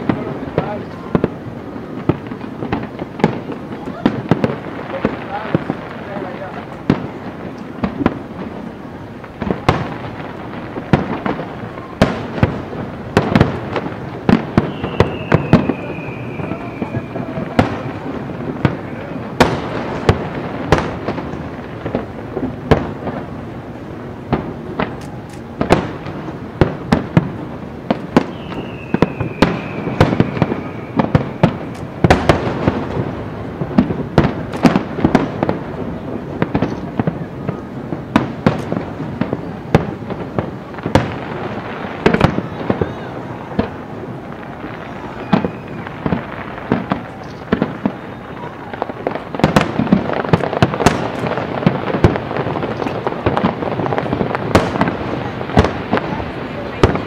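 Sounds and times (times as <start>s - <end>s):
fireworks booming and crackling: 0.0s - 57.0s
falling firework whistle: 13.2s - 21.1s, 27.9s - 32.8s, 35.9s - 37.8s, 40.9s - 51.4s.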